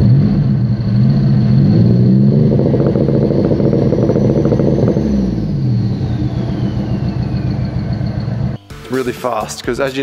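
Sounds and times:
car engine revving: 0.0s - 8.6s
turbo whistle: 1.6s - 8.6s.

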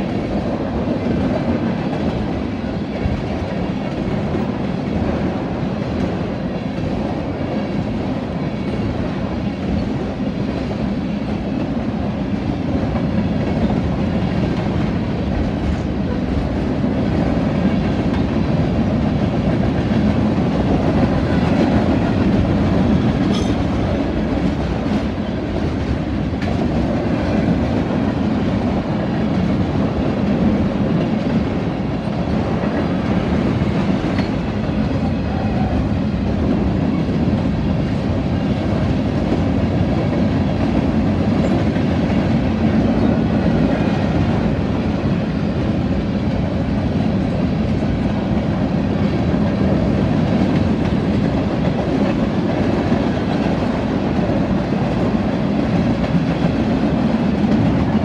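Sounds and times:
train wheels rumbling on rails: 0.0s - 58.0s
wheels clacking over rail joints: 17.2s - 35.7s.

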